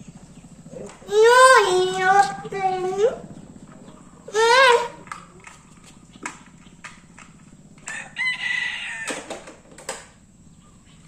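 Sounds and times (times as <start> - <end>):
rooster crowing: 7.8 - 9.7.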